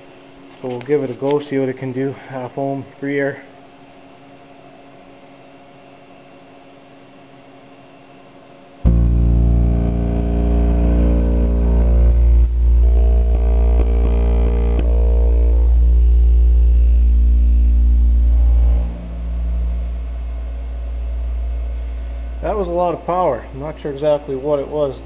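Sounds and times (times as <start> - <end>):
subwoofer playing deep bass tone: 8.8 - 23.6.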